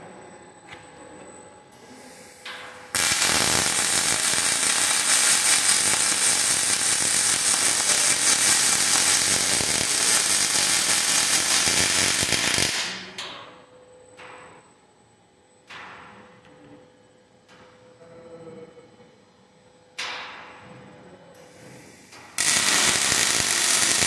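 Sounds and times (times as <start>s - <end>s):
welding arc crackling: 2.9s - 13.1s, 22.3s - 24.0s.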